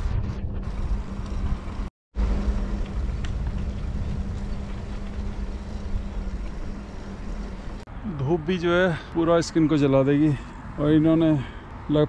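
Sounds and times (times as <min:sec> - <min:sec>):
road traffic: 0:00.0 - 0:12.0
wind on microphone: 0:02.7 - 0:07.8.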